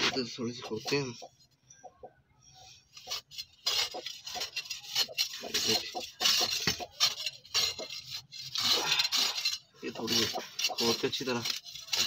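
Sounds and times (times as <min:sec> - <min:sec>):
metal rod scraping sandy soil: 0:02.5 - 0:12.0.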